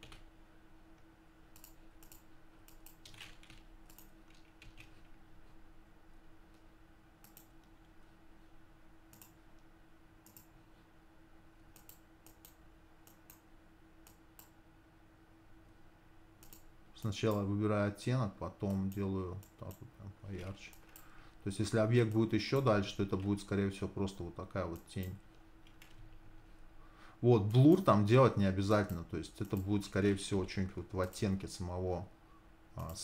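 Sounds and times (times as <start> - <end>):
low steady hum: 0.0 - 33.0
keyboard and mouse clicks: 1.5 - 5.2, 7.2 - 7.7, 9.1 - 10.5, 11.7 - 13.4, 16.4 - 16.7, 18.7 - 21.1.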